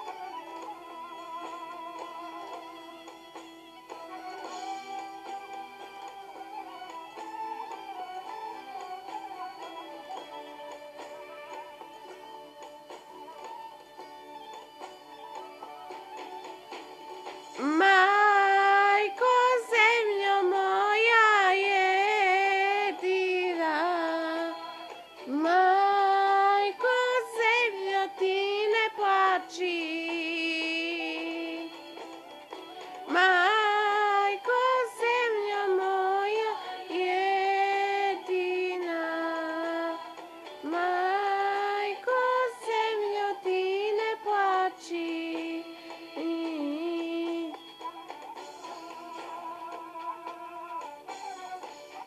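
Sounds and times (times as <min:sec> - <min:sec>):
woman singing: 0:17.6 - 0:31.9, 0:33.0 - 0:51.6.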